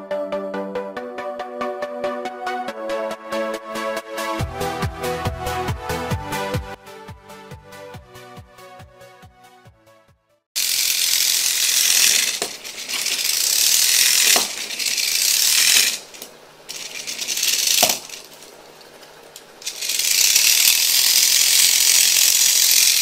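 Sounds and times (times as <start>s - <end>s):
toy car motor whirring: 10.6s - 23.0s.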